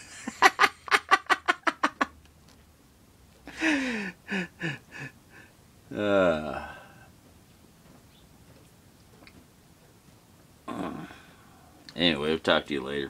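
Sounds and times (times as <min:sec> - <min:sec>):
man laughing hard: 0:00.0 - 0:02.1, 0:03.5 - 0:05.1.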